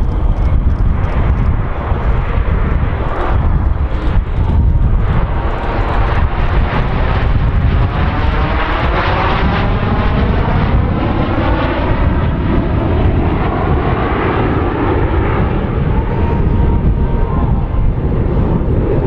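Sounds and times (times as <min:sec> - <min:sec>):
jet engines passing: 0:00.0 - 0:19.0.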